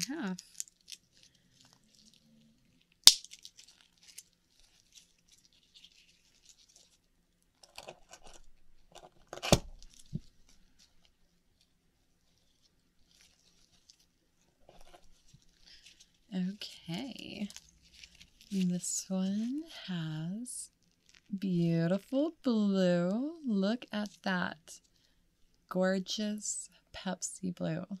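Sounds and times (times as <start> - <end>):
soft scratching: 3.5 - 22.3.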